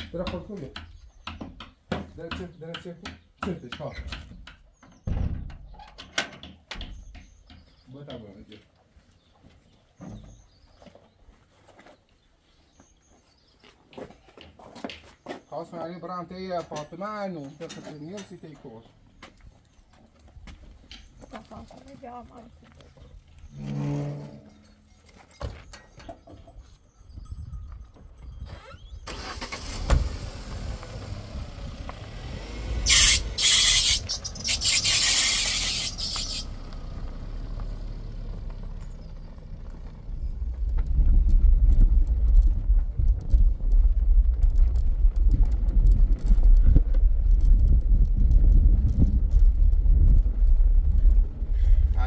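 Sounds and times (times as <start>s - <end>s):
car driving on dirt track: 29.1s - 52.0s.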